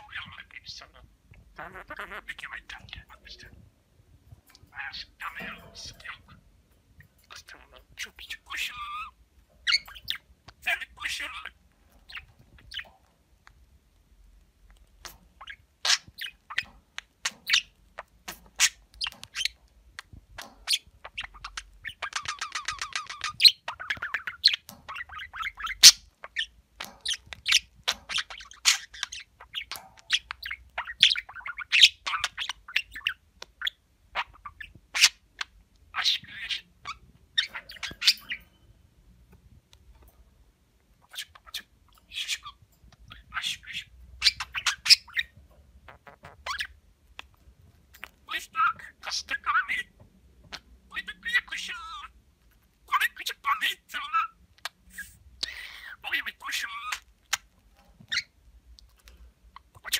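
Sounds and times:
budgerigar warbling and chattering: 0.0s - 3.6s, 4.5s - 6.4s, 7.2s - 13.0s, 15.0s - 38.5s, 41.0s - 47.3s, 48.0s - 52.2s, 52.8s - 57.5s, 58.1s - 58.3s, 59.6s - 59.9s.

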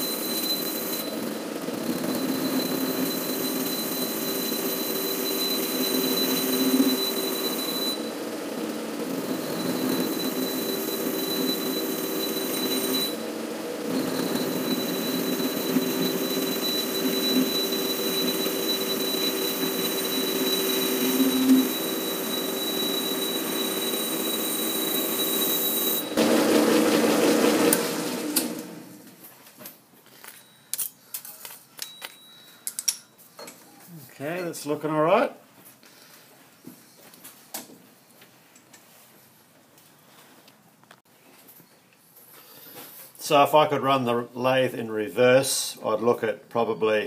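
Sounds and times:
metal lathe machining with whine: 0.0s - 28.8s.

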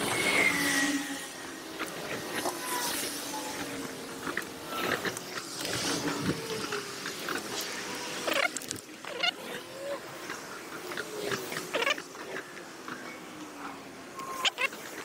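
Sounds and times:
high gliding squeaks: 0.0s - 5.1s.

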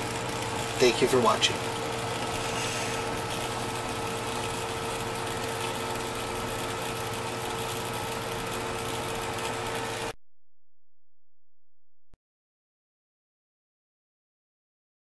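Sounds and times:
aquarium pump motor hum: 0.0s - 10.2s
water hissing through filter: 2.2s - 3.5s.

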